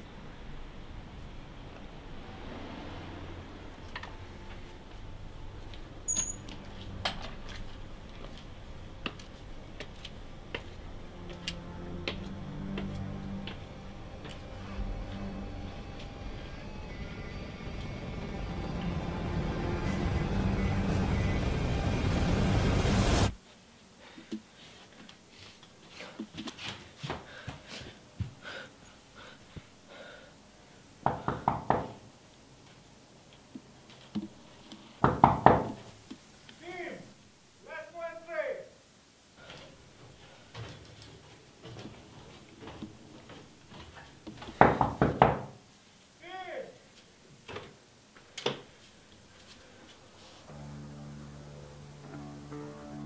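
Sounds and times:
faint low hum: 0:00.0 - 0:53.0
background music: 0:02.9 - 0:23.4, 0:50.2 - 0:53.0
footsteps clicking on walkway: 0:05.6 - 0:15.3, 0:24.1 - 0:28.6, 0:39.4 - 0:45.3
knocking on wooden door: 0:31.1 - 0:32.0, 0:35.0 - 0:35.8, 0:44.5 - 0:45.5
faint clicks and rustles: 0:39.4 - 0:44.6.

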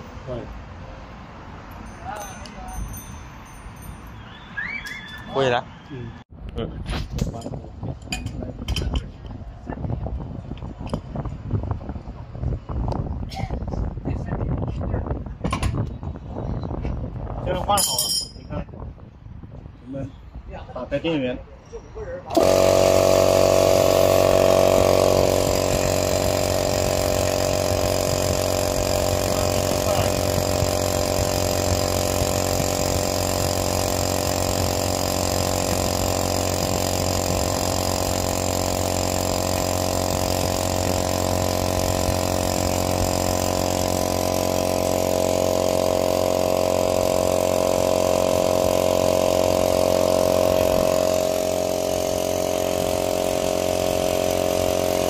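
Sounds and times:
air compressor running: 0:22.3 - 0:55.0.

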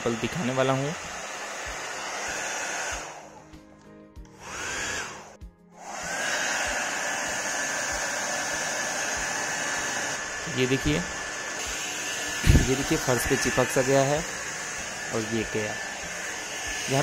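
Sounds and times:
hair dryer blowing: 0:00.0 - 0:03.6, 0:04.2 - 0:17.0.

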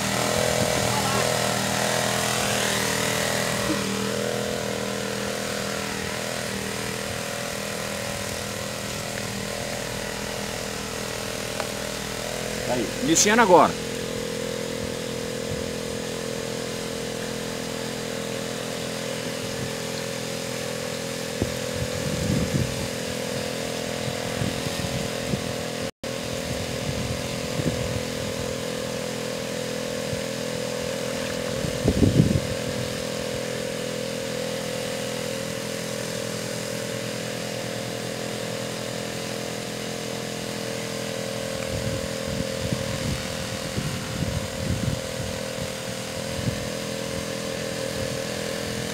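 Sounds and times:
small boat engine running: 0:00.0 - 0:48.9.

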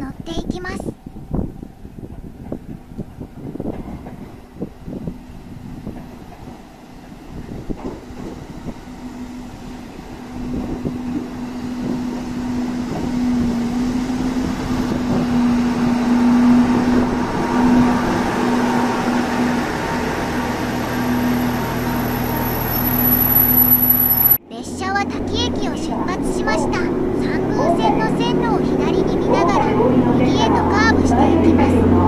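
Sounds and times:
railcar engine and wheel noise: 0:00.0 - 0:32.0
low engine drone: 0:08.1 - 0:24.4.

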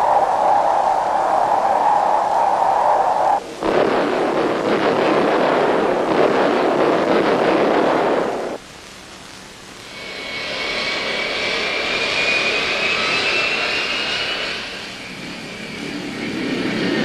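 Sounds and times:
bomb explosion roar: 0:00.0 - 0:08.6
steady hissing noise: 0:00.0 - 0:17.0.

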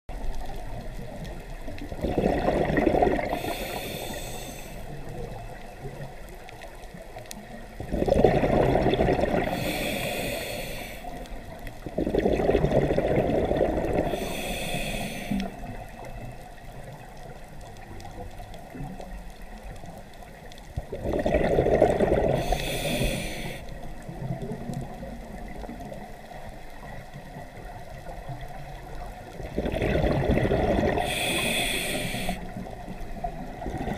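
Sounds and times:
underwater water noise: 0:00.1 - 0:33.9
exhaust bubbles rumbling: 0:01.9 - 0:03.6, 0:07.8 - 0:09.7, 0:11.8 - 0:14.1, 0:20.8 - 0:22.4, 0:29.4 - 0:31.6
regulator air hiss: 0:03.3 - 0:05.0, 0:09.5 - 0:11.2, 0:14.0 - 0:15.6, 0:22.4 - 0:23.8, 0:31.0 - 0:32.6.

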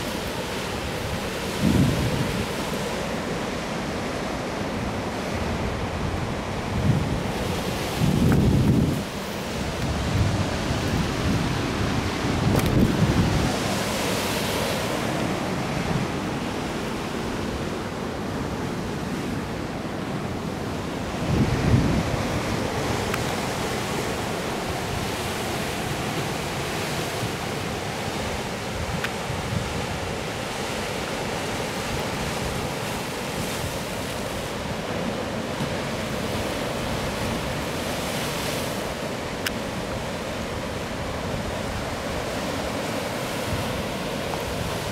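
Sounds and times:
wind on microphone: 0:00.0 - 0:03.0, 0:05.3 - 0:19.7, 0:20.6 - 0:44.9
sea surf breaking on rocks: 0:00.0 - 0:44.9.

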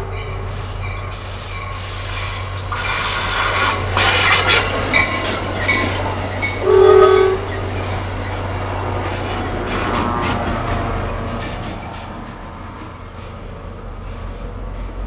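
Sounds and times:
train wheels clacking over rails: 0:00.0 - 0:15.0
wheel squeals: 0:00.2 - 0:12.2
train horn blast: 0:06.6 - 0:07.6.

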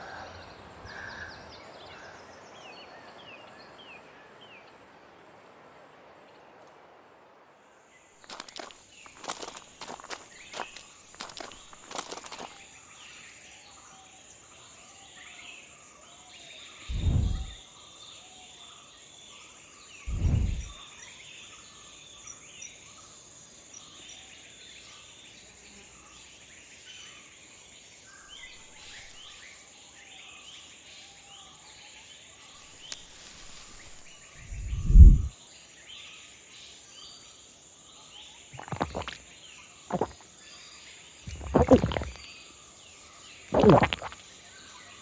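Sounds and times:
insect drone: 0:07.7 - 0:26.7, 0:32.0 - 0:35.6, 0:36.5 - 0:45.0
birds chirping: 0:08.2 - 0:13.2, 0:16.8 - 0:17.6, 0:20.0 - 0:20.8, 0:32.7 - 0:35.3, 0:38.6 - 0:40.2, 0:41.3 - 0:42.4
dull low thumps: 0:16.9 - 0:17.6, 0:20.1 - 0:20.7, 0:34.5 - 0:35.3, 0:41.3 - 0:42.2.

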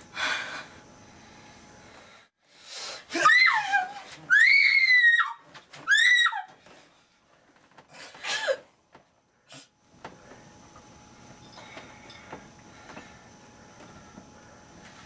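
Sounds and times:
person screaming in terror: 0:03.1 - 0:06.5.

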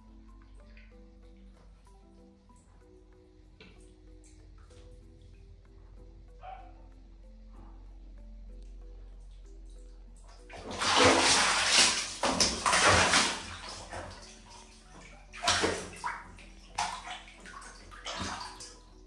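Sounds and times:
water splashing in plastic basin: 0:10.5 - 0:18.8.

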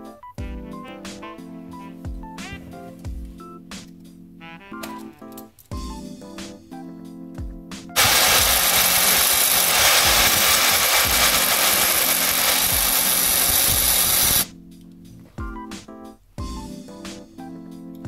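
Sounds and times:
background music: 0:00.0 - 0:18.0
power tool grinding: 0:08.0 - 0:14.4.

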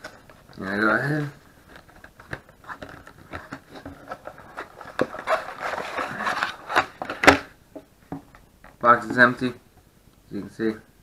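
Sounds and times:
cardboard rustling and scraping: 0:00.0 - 0:07.5.

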